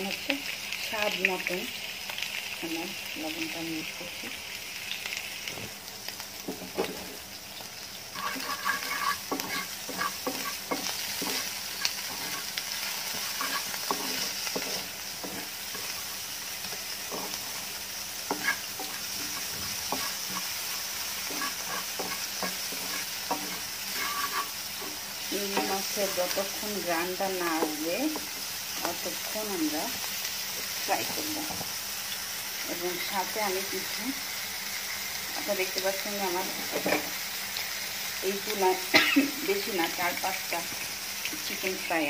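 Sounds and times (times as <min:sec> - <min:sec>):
food sizzling in a pan: 0:00.0 - 0:42.0
wooden spatula scraping a pan: 0:08.1 - 0:29.0, 0:30.6 - 0:31.8, 0:36.4 - 0:37.2.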